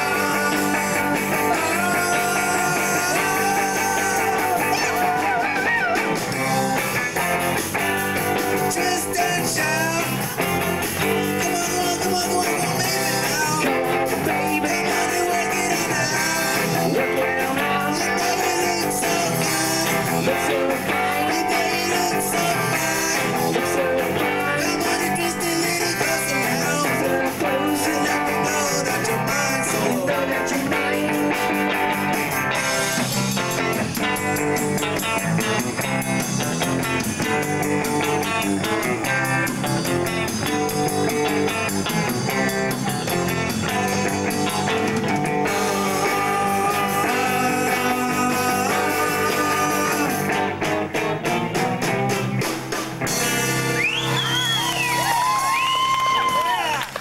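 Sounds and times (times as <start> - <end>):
drum kit with cymbals: 0.0 - 56.6
bass guitar: 0.0 - 57.0
distorted electric guitars: 0.0 - 57.0
voices whooping and cheering: 53.8 - 57.0.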